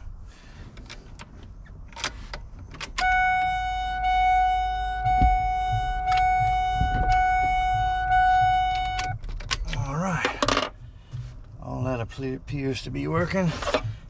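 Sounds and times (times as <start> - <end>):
dashboard warning chime: 3.0 - 9.2.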